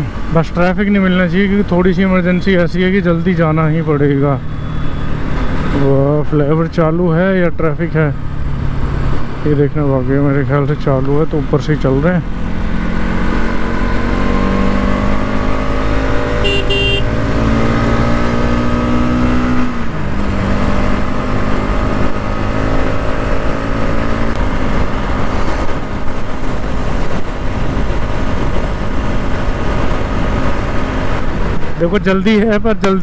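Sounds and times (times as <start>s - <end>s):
short beeps: 4.5s - 5.6s, 16.4s - 17.1s
motorcycle engine accelerating: 11.4s - 31.8s.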